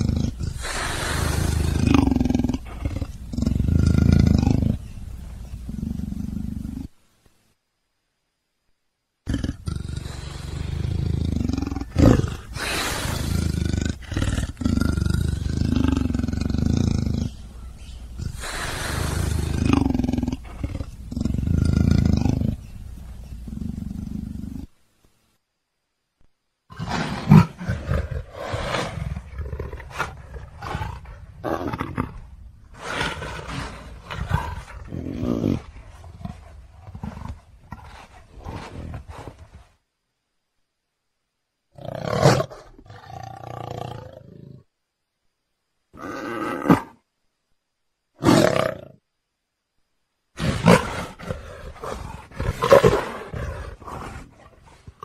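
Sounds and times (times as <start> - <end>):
big cat roaring and growling: 0.0 - 4.8, 18.1 - 22.6, 50.4 - 55.0.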